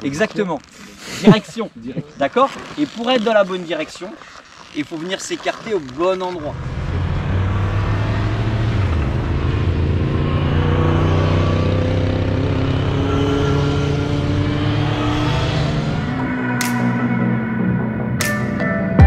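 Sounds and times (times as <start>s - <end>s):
motorcycle engines accelerating: 6.4s - 18.2s.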